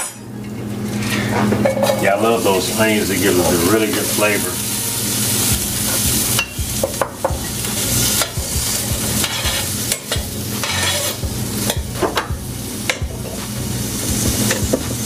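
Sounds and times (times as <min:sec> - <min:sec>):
onions sizzling in butter: 0:01.2 - 0:15.0
spoon scraping metal pan: 0:09.1 - 0:12.3.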